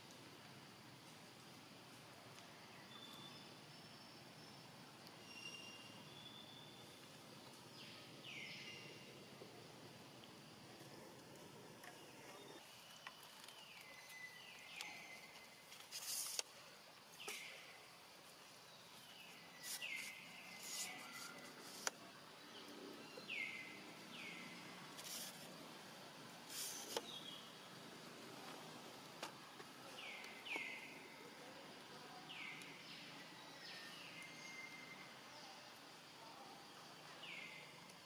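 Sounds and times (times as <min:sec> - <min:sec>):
short hissing rustles: 0:15.8 - 0:16.5, 0:26.5 - 0:27.0.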